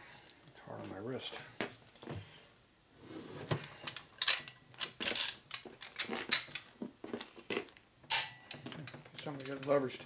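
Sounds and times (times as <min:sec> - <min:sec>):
wrench clicking and clanking: 0:09.2 - 0:09.8.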